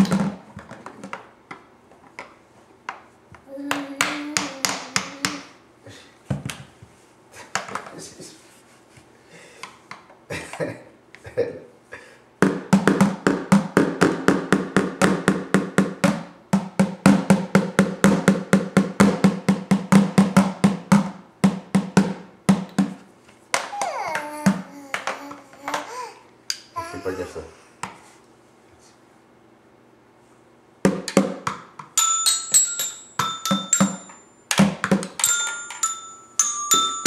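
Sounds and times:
toy drum beaten with mallets: 31.0 - 37.0.

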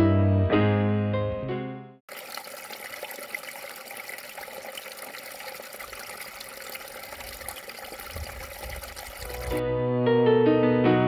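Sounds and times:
stream water running over rocks: 2.1 - 9.6.

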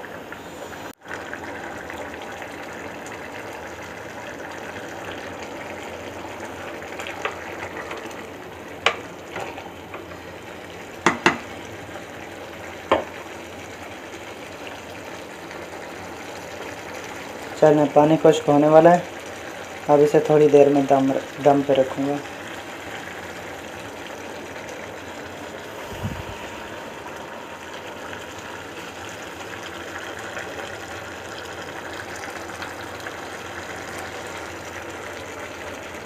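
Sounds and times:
pot boiling and bubbling: 0.0 - 36.0
spoon knocking against a pot: 11.0 - 11.5.

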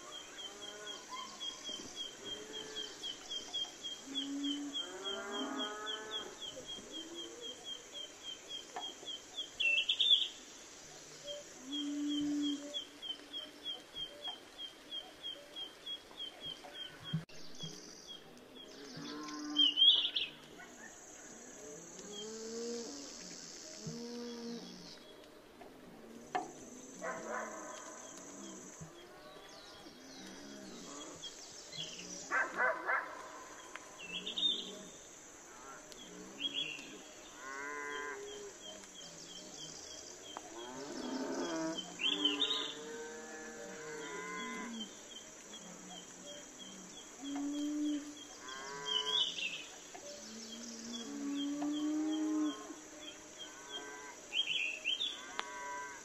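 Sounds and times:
birds chirping: 35.9 - 43.2.

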